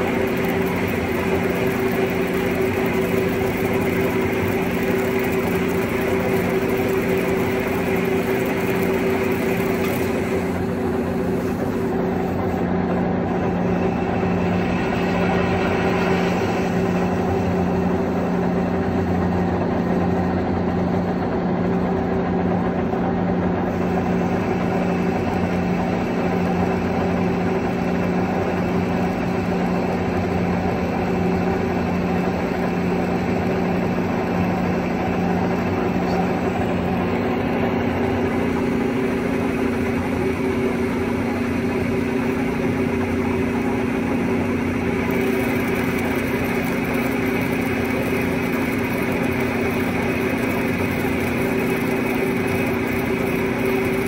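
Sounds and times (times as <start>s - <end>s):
machine hiss: 0.0s - 12.7s
steady machine tones: 0.0s - 21.5s, 23.6s - 54.0s
lathe motor and gearing hum: 0.0s - 54.0s.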